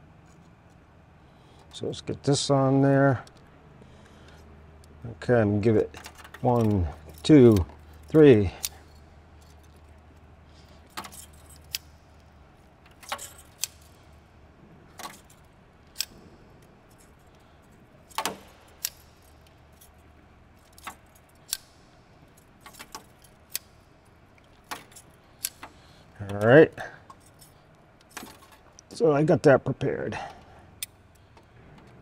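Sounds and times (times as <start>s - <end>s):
metallic clicks of safety wire and pliers: 5.9s - 14.2s, 15.0s - 20.0s, 20.6s - 28.9s, 30.2s - 32.0s.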